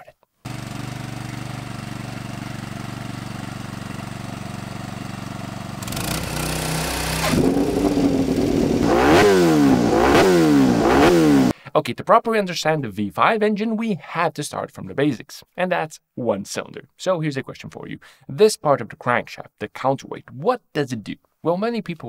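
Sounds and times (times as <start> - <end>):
motorcycle engine idling: 0.5 - 11.5.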